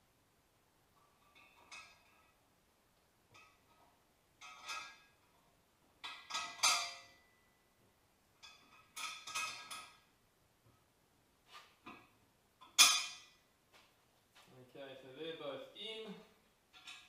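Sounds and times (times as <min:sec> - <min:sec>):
metal parts and tools clinking: 0:03.3 - 0:05.4, 0:06.0 - 0:07.3, 0:08.4 - 0:10.1, 0:12.6 - 0:13.4, 0:16.7 - 0:17.0.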